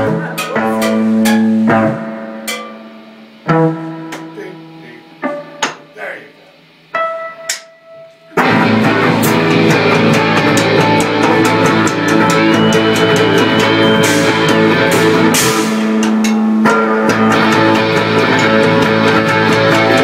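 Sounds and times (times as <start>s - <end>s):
cymbal hits: 0.0s - 3.4s, 8.4s - 18.6s
live rock band playing: 0.0s - 20.0s.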